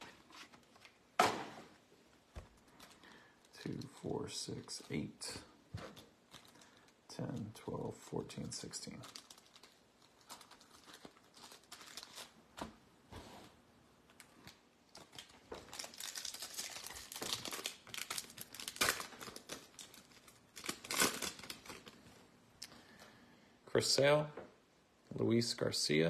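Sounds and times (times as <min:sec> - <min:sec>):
foil wrappers crinkling and tearing: 0:06.0 - 0:07.0, 0:08.8 - 0:12.4, 0:14.4 - 0:22.0.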